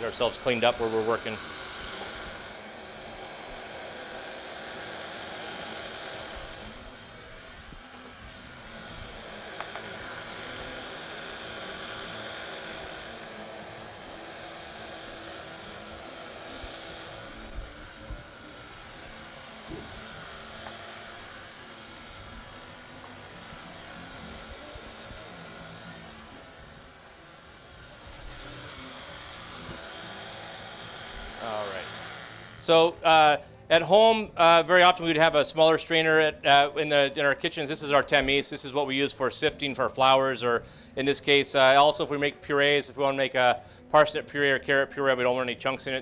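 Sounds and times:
blender whirring: 0.0 - 32.7.

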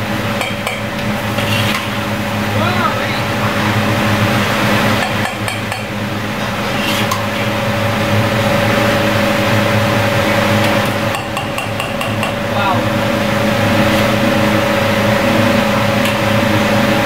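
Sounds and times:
gas wok range drone: 0.0 - 17.0
kitchen fan: 0.0 - 17.0
metal ladle scraping a wok: 1.3 - 2.0, 6.5 - 7.5.

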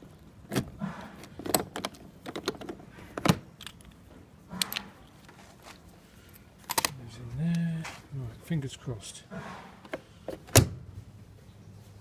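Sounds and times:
padlock metallic clicks and rattles: 0.1 - 5.3, 6.6 - 7.0.

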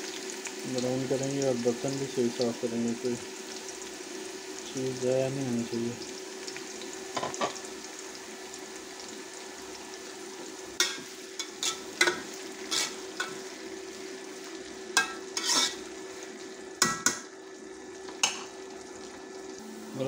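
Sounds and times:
onions sizzling in hot oil: 0.0 - 20.0
metal spoon scraping a pot: 11.4 - 13.0, 15.0 - 15.8
steady hum: 19.5 - 20.0.

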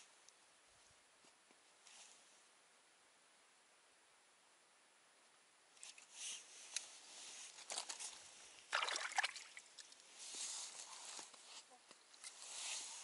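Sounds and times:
water splashing and trickling: 8.7 - 10.1.

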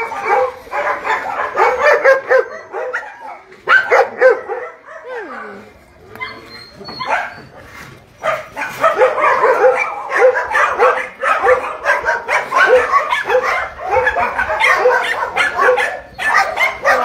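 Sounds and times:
dogs barking: 0.0 - 5.6, 6.9 - 7.5, 8.2 - 17.0.

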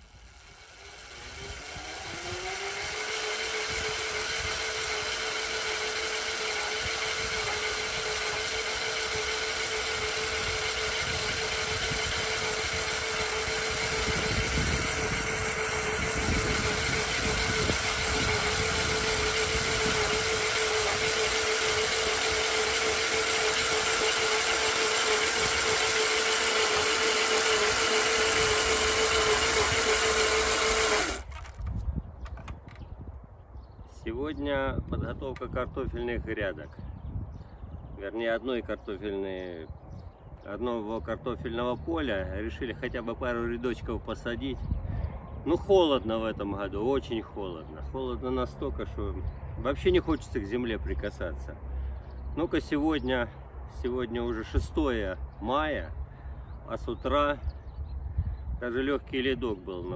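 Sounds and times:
electric cultivator motor whining: 0.0 - 32.8.

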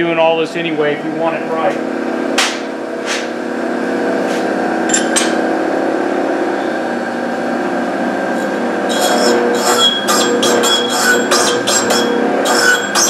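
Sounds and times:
grinder motor hum: 0.6 - 13.0
hissing metal grinding: 8.3 - 13.0.

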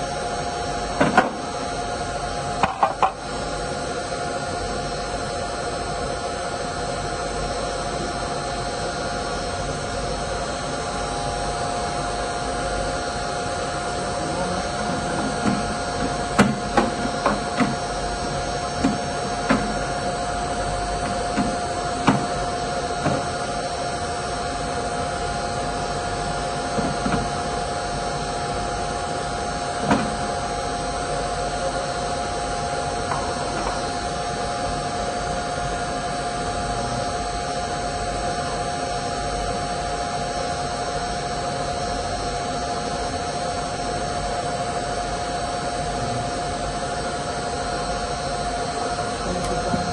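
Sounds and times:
mechanical hum: 0.0 - 49.9.

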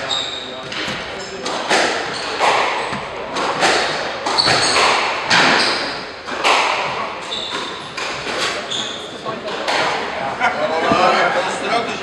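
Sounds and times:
shoes squeaking on wooden floor: 0.0 - 9.3
squash ball hitting rackets and walls: 0.0 - 10.1.

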